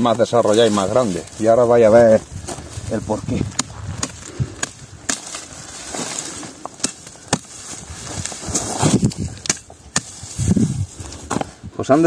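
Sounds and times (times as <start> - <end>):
leaves and twigs rustling: 0.0 - 12.0
hand tool snapping suckers: 3.5 - 10.4.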